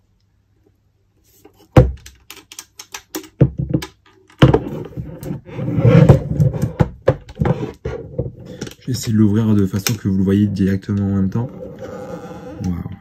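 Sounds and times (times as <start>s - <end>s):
box rubbing and rustling: 4.5s - 8.6s.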